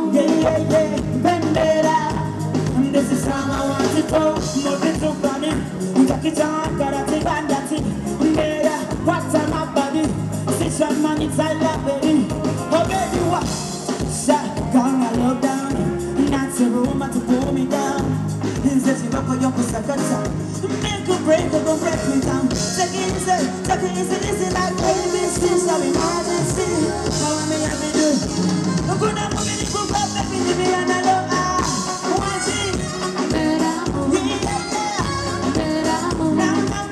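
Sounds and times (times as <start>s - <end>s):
live band playing upbeat song: 0.0s - 36.9s
woman singing into microphone: 21.3s - 27.9s, 29.0s - 36.9s.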